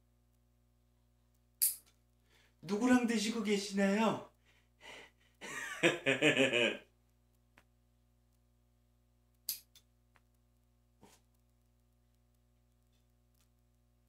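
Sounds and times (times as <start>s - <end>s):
nail clipper clicking: 1.6s - 1.9s, 9.5s - 9.8s
man's voice: 2.6s - 4.3s.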